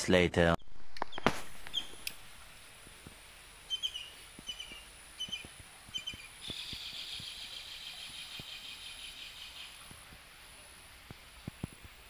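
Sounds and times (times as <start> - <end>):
bird chirping: 0.6 - 2.2, 3.6 - 10.0
insect buzzing: 0.7 - 10.7.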